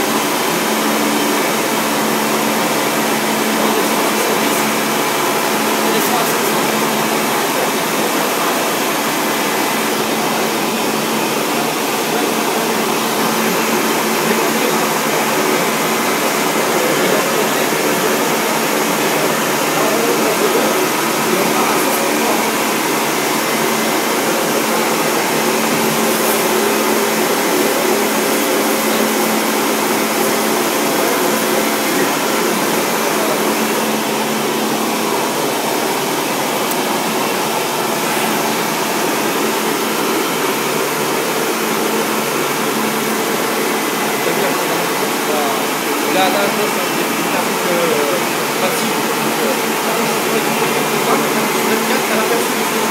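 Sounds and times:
foam-cutting machine humming: 0.0 - 52.9.

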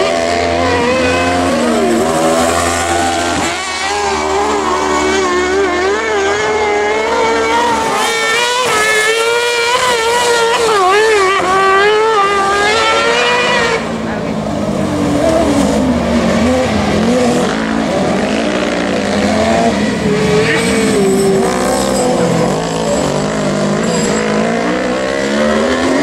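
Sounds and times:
racing buggy engines revving: 0.0 - 26.0.

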